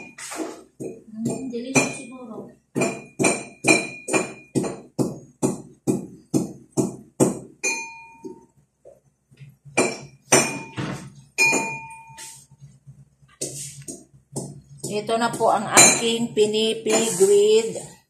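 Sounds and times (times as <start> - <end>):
metal kitchenware clinking: 7.6 - 8.4, 9.8 - 12.3.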